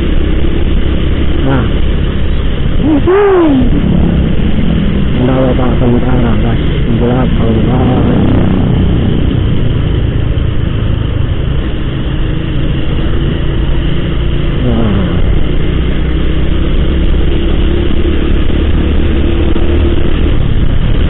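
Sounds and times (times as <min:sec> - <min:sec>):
wind on microphone: 0:00.0 - 0:13.4.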